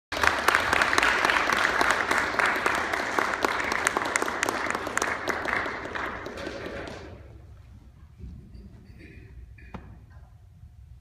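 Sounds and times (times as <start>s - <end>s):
audience applauding: 0.1s - 7.3s.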